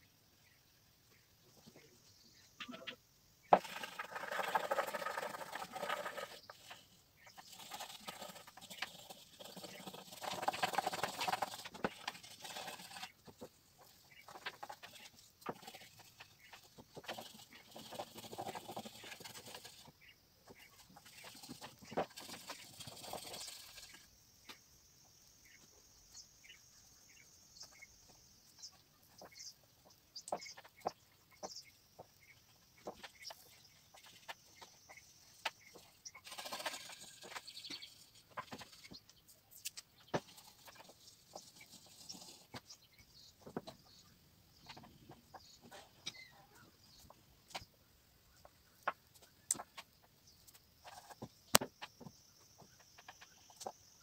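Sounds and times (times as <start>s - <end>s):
animal calls: 2.6s - 3.0s.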